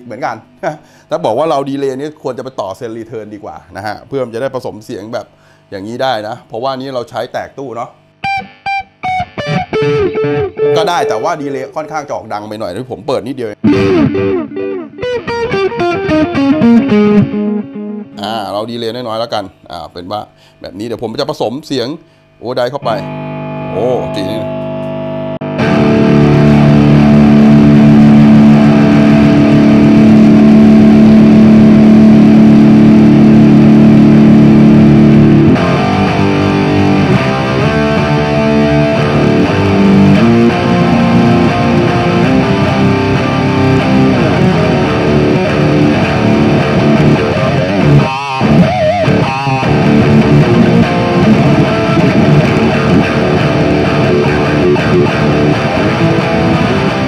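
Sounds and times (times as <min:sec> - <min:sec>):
distorted electric guitar: 0:08.0 - 0:12.2, 0:13.4 - 0:19.3, 0:22.1 - 0:57.0.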